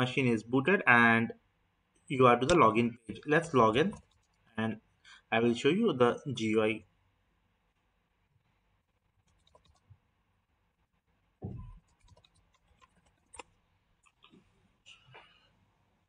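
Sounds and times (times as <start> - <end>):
low thump: 11.4 - 11.8.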